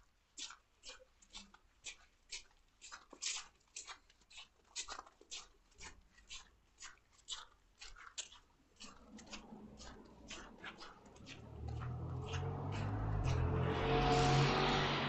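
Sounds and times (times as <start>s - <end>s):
footsteps walking: 8.8s - 14.0s
vehicle rumble: 9.0s - 15.0s.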